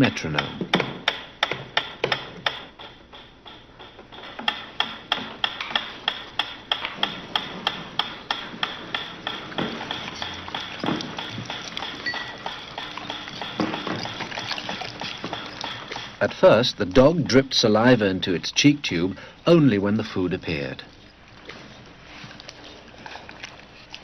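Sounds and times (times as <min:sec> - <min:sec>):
metronome ticking: 0:08.9 - 0:18.9.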